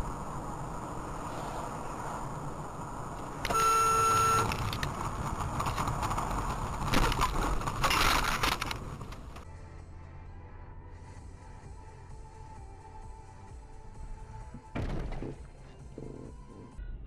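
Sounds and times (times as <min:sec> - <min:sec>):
car sliding with rushing and scraping: 0:00.0 - 0:09.4.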